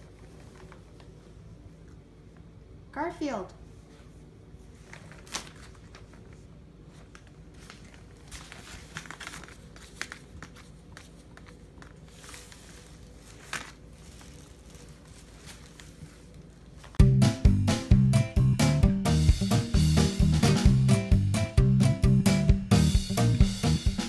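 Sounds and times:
paper rustling and crinkling: 0.0s - 1.4s, 4.6s - 17.0s
sharp paper crackles: 4.7s - 17.0s.

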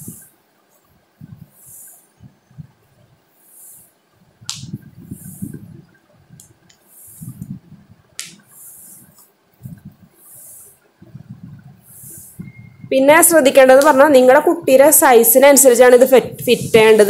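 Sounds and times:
fabric rubbing: 8.2s - 9.3s, 15.9s - 17.0s.

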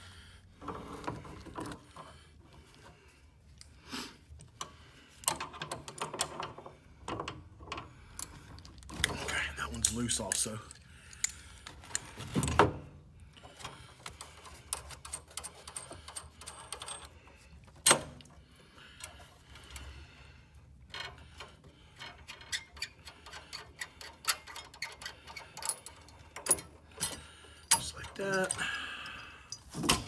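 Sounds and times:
tools clicking and tapping: 22.0s - 30.0s.

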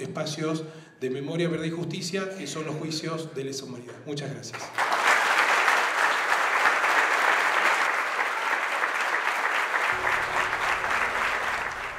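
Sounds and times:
audience applauding: 4.7s - 11.9s.

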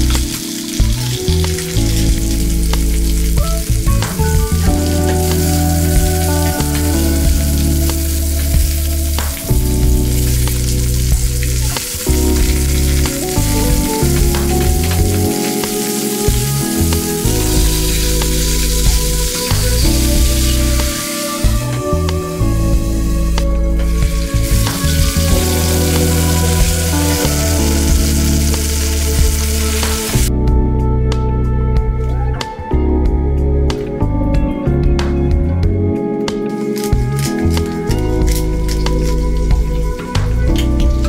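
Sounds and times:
crackling pops: 0.0s - 22.3s
chicken frying in oil: 0.0s - 30.3s, 36.5s - 41.0s
soft background music: 0.0s - 41.0s.

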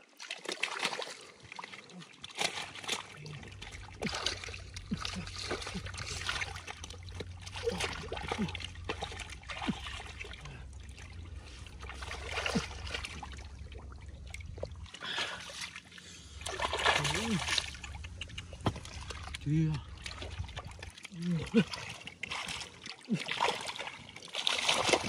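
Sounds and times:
water splashing and trickling: 0.0s - 25.0s
steady low hum: 3.1s - 22.1s.

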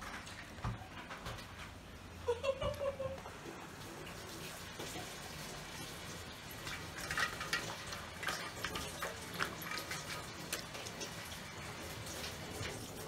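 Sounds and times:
dog lapping water: 4.2s - 13.0s.

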